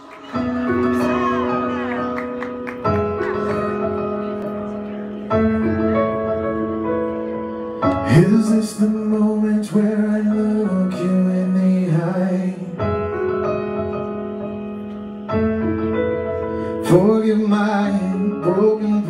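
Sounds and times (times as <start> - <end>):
slow piano chords: 0.0 - 19.0
person singing: 7.9 - 13.4.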